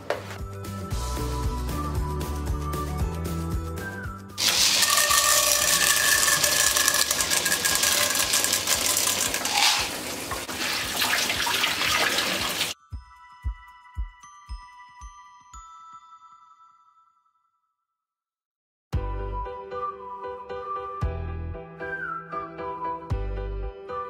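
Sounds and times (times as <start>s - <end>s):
rattle of falling kernels: 4.4s - 10.0s
kernels sizzling in hot oil: 4.4s - 12.8s
light chiming background music: 12.8s - 17.8s.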